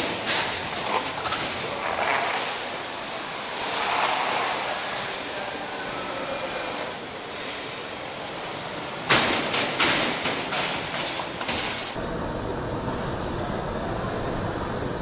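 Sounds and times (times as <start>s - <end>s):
steady machine hum: 12.0s - 15.0s.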